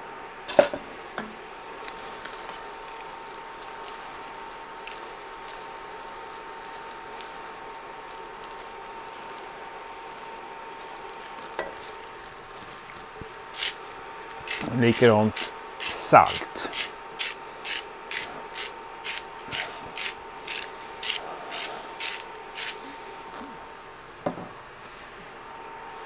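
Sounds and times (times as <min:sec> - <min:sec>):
rice sizzling in a pot: 0:00.4 - 0:24.0
wooden spatula stirring: 0:01.8 - 0:15.2.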